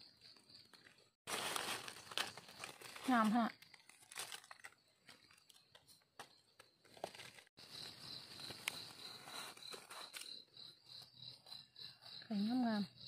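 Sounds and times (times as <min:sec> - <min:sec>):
insect chirping: 0:00.0 - 0:13.0
knife scraping in soil and leaves: 0:08.5 - 0:10.4.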